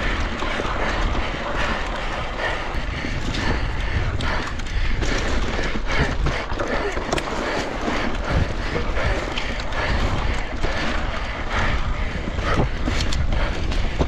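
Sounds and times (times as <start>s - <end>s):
bike knocking and rattling: 0.0s - 14.0s
tyres rumbling on rough ground: 0.0s - 14.0s
wind on microphone: 7.8s - 14.0s.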